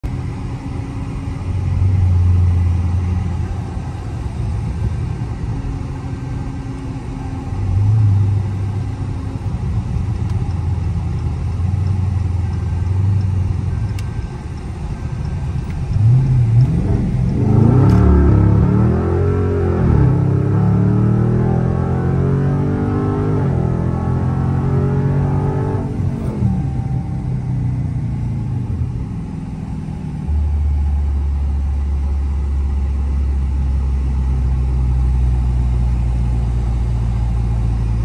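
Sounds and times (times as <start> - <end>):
car engine rumbling: 0.0 - 38.0.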